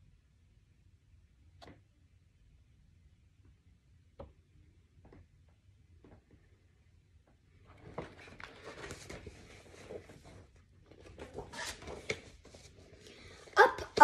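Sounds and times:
book rustling with light clicks: 7.6s - 13.4s.

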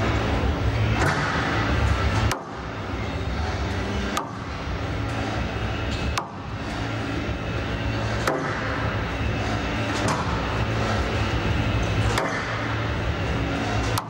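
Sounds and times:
steady background hum: 0.0s - 14.0s
squash ball cracks: 1.0s - 2.7s, 4.0s - 4.5s, 5.9s - 6.4s, 12.0s - 12.6s.

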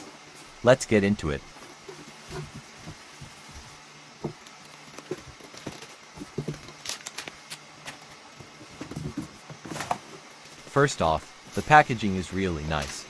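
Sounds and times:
plastic bag crinkling: 6.6s - 7.6s.

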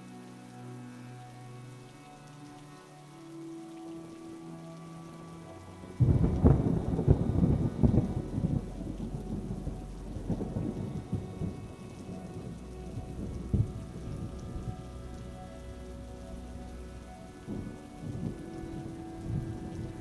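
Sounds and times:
steady rain: 0.0s - 20.0s
thunder rumbling and cracking: 6.0s - 14.9s.

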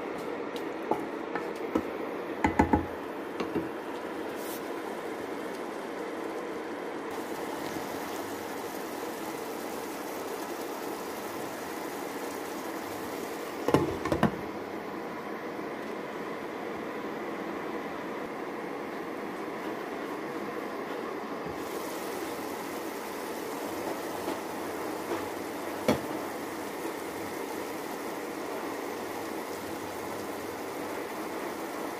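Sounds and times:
pan simmering with hiss: 0.0s - 31.9s
wooden spatula knocking on pan: 0.9s - 3.7s.

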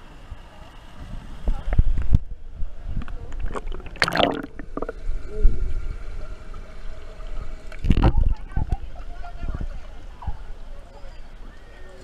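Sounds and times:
water sloshing and gurgling: 3.0s - 6.0s
water splashing: 3.3s - 5.3s.

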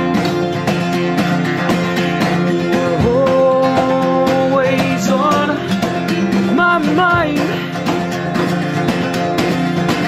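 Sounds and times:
cajon beats: 0.0s - 10.0s
strummed acoustic guitar: 0.0s - 10.0s
person singing: 2.2s - 8.0s.

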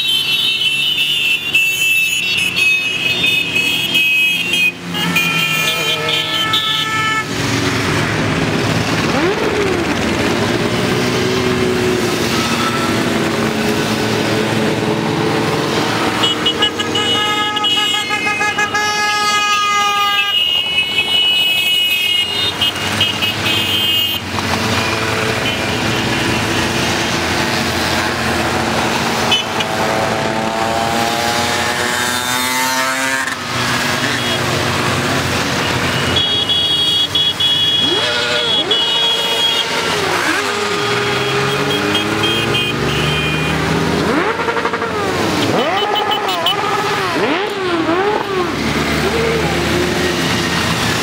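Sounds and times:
horns sounding: 0.0s - 51.0s
engine revving: 4.7s - 17.5s, 22.9s - 36.1s, 37.6s - 51.0s
motorcycles riding past: 22.8s - 36.1s, 37.7s - 51.0s.

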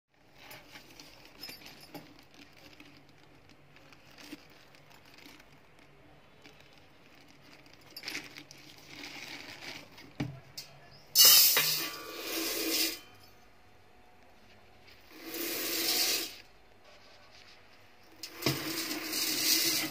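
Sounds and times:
plastic bag rustling: 0.2s - 10.2s
rice grains pattering: 2.2s - 10.2s.

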